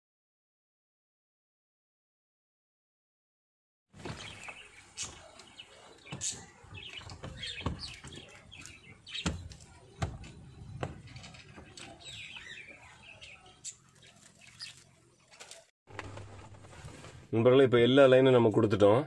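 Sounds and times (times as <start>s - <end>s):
birds chirping: 4.0s - 15.7s.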